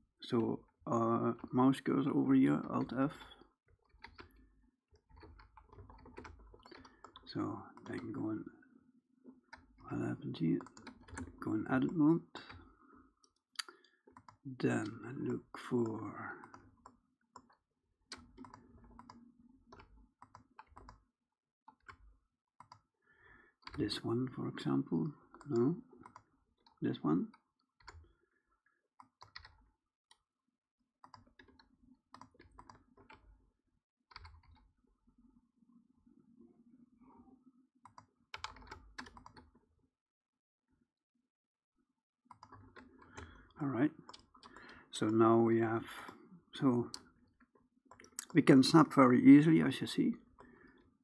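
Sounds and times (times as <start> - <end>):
keyboard and mouse clicks: 3.8 - 4.4, 5.0 - 8.3, 9.3 - 21.0, 21.7 - 22.9, 25.0 - 28.0, 29.0 - 30.3, 31.0 - 33.3, 34.1 - 34.7, 37.8 - 39.6, 42.3 - 45.2, 47.9 - 49.0
mouse and keyboard clicking: 5.1 - 8.1, 15.3 - 21.0.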